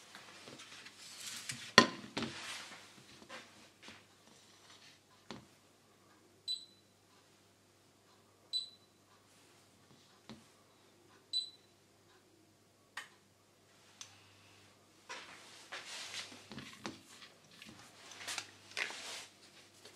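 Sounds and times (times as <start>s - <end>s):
hob touch control beeps: 6.5s - 6.9s, 8.5s - 8.9s, 11.3s - 11.7s.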